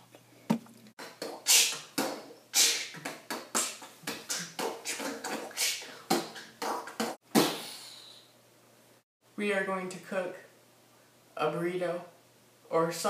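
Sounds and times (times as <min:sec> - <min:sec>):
beatboxing mouth sounds: 0:01.0 - 0:08.2.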